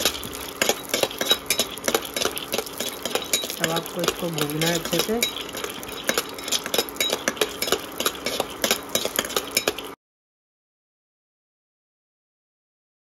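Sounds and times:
spatula scraping nuts in a pan: 0.0s - 10.0s.

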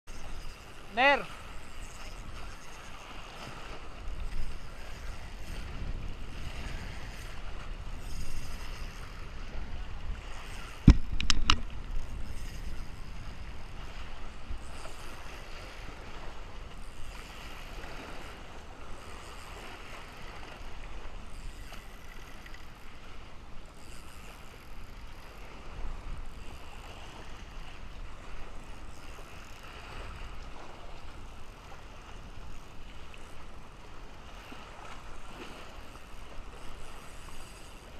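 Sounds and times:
wind: 0.0s - 37.9s
water noise: 0.1s - 37.9s
sharp knocks: 10.8s - 11.7s.

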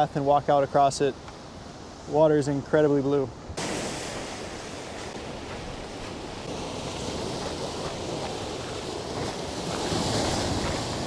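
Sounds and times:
ocean surf on rocky shore: 0.0s - 11.0s
wind on microphone: 3.5s - 11.0s.

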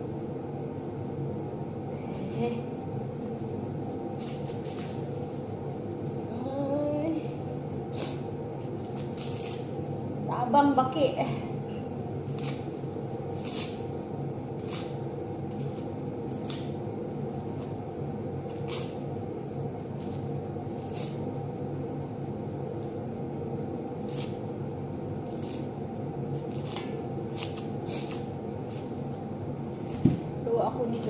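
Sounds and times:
low hum: 0.0s - 31.0s
onion skins crackling: 7.9s - 10.0s, 11.3s - 19.2s, 19.8s - 21.4s, 24.0s - 24.6s, 25.2s - 30.0s.

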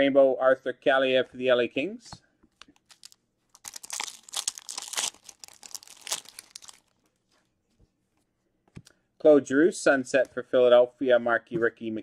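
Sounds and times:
foil wrapper tearing and crinkling: 2.7s - 7.0s.

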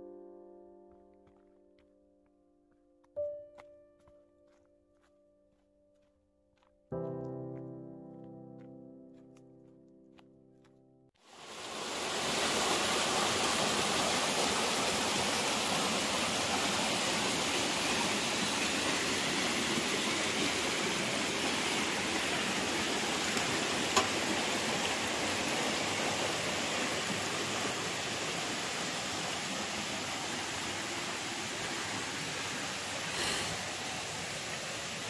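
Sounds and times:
rushing water: 11.2s - 35.0s.

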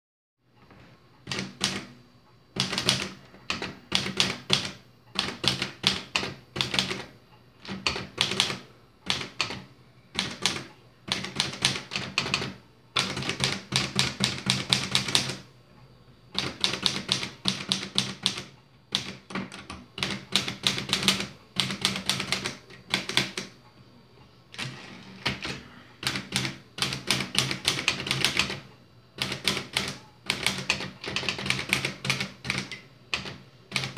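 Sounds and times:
typewriter keys clattering: 10.2s - 15.4s, 24.6s - 28.6s, 29.2s - 33.9s.

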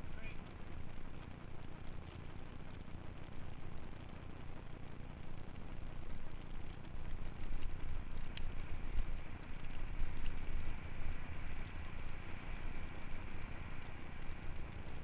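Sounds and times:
small clicks: 0.4s - 4.2s, 5.2s - 10.7s.

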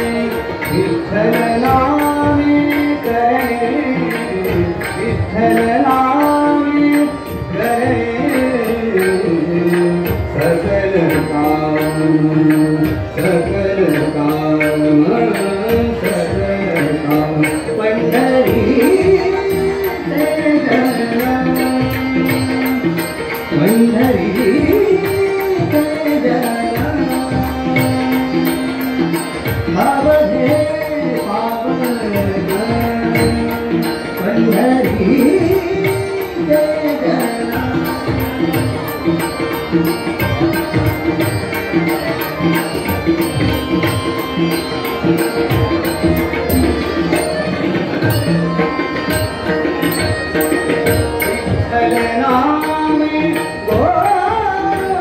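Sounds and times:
harmonium melody: 0.0s - 55.0s
tabla playing fast strokes: 0.0s - 55.0s.

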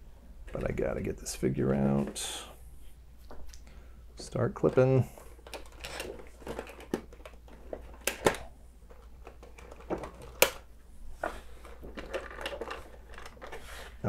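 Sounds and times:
packaging rustling and crinkling: 4.7s - 10.6s, 11.2s - 14.0s.

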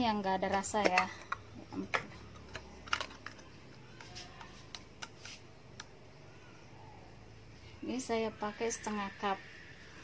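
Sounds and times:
plastic cup clicks and taps: 0.5s - 3.4s, 4.0s - 6.0s.

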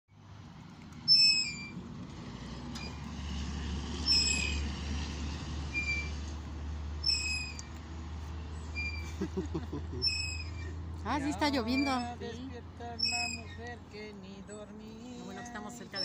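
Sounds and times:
metal chain swing squeaking: 1.0s - 1.8s, 2.8s - 3.0s, 4.0s - 4.7s, 5.7s - 6.2s, 7.0s - 7.8s, 8.6s - 9.2s, 10.0s - 13.8s, 14.5s - 16.0s.

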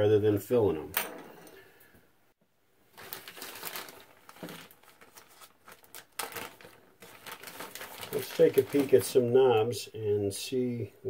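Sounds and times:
plastic bag crinkling: 2.9s - 9.4s.

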